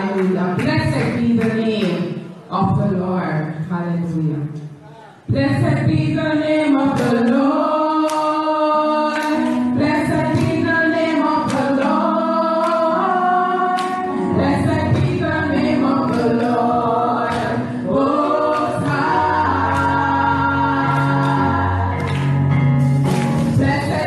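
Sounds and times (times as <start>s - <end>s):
women singing gospel song: 5.3s - 22.5s, 23.3s - 24.0s.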